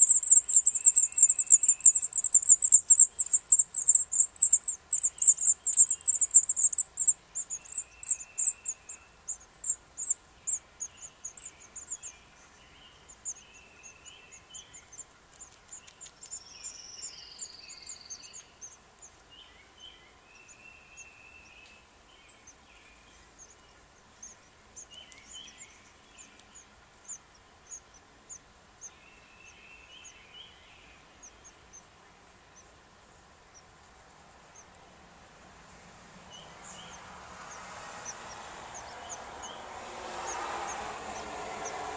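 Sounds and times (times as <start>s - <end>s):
nestlings cheeping: 0.0s - 12.1s, 12.9s - 19.2s, 36.4s - 41.9s
birds chirping: 0.0s - 41.9s.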